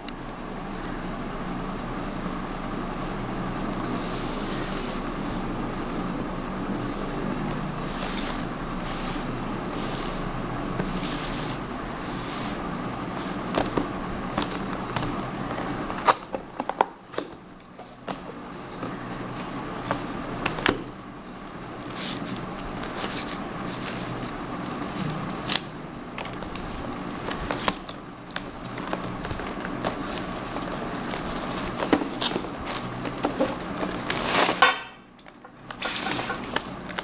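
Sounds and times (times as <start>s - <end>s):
steady hum: 0.0s - 37.0s
cardboard box rustling and scraping: 7.8s - 10.2s, 10.8s - 14.7s, 21.9s - 24.3s, 26.5s - 34.8s, 35.8s - 37.0s.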